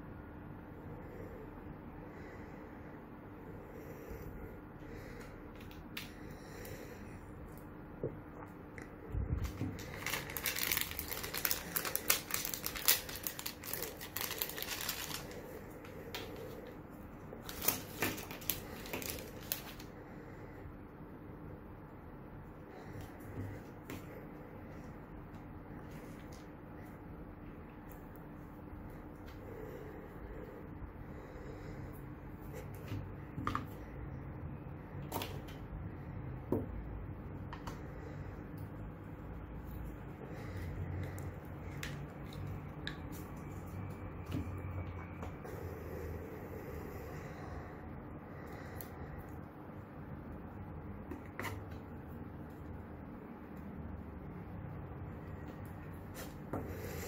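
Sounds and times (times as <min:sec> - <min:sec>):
plastic packaging crinkling: 0:09.3 - 0:16.6, 0:17.4 - 0:19.9.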